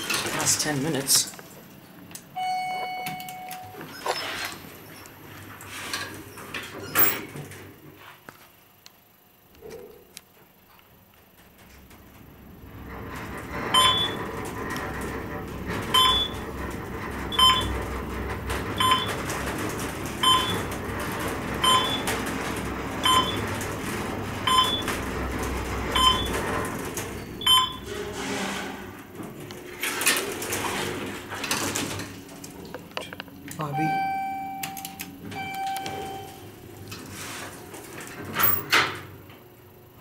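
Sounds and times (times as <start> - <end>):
elevator humming: 0.0 - 7.9, 11.0 - 40.0.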